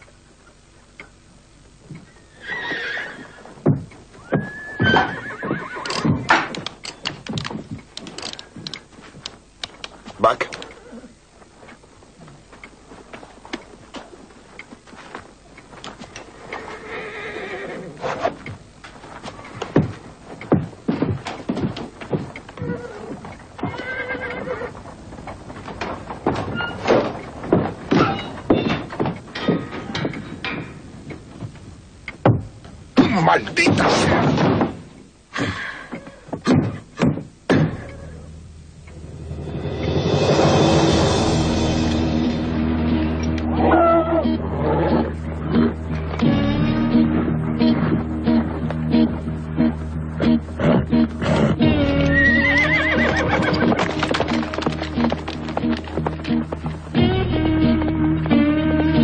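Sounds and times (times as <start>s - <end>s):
horses' hooves clattering: 1.8s - 39.1s, 43.2s - 59.0s
horses neighing: 2.2s - 6.6s, 10.2s - 11.2s, 16.2s - 18.5s, 22.0s - 25.0s, 35.4s - 36.6s, 37.6s - 38.4s, 43.5s - 47.0s, 50.2s - 57.0s.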